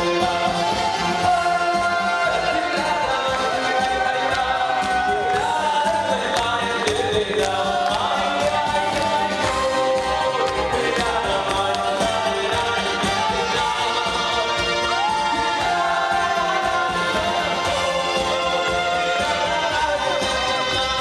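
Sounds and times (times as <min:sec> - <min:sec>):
group singing festive song: 0:00.0 - 0:21.0
instrumental accompaniment: 0:00.0 - 0:21.0.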